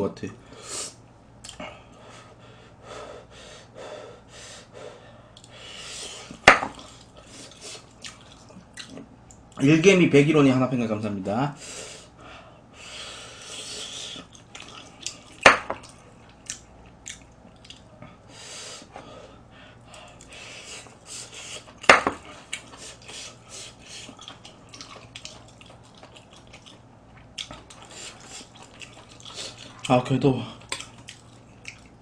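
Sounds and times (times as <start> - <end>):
eating noises: 5.4 - 9.6, 13.4 - 18.2, 19.8 - 32.0.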